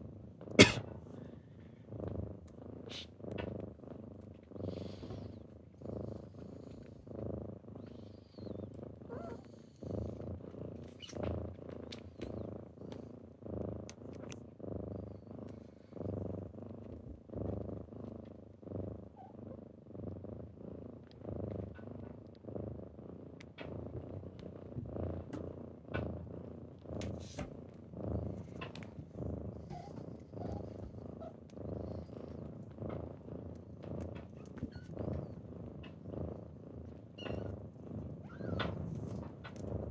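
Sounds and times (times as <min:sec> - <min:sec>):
kitten purring: 0:00.0 - 0:39.9
faint clicks: 0:10.4 - 0:13.1, 0:13.8 - 0:14.5, 0:27.0 - 0:29.0.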